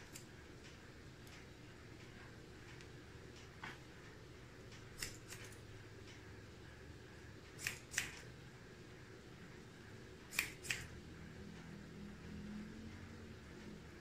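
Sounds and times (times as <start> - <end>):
scissors snipping hair: 0.0 - 0.3, 4.8 - 5.7, 7.5 - 8.3, 10.3 - 11.0.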